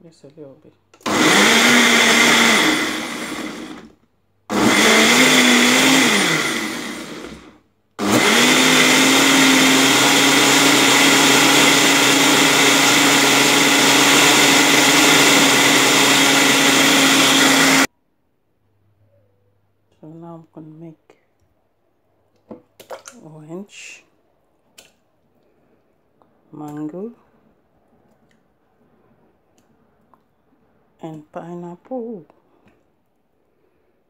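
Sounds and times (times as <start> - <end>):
blender motor whining: 1.0 - 17.9.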